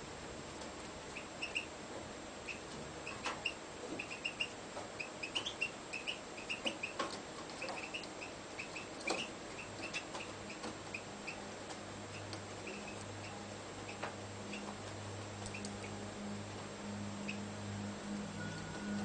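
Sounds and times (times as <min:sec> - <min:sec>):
bird chirping: 0:02.5 - 0:07.0, 0:07.6 - 0:11.4.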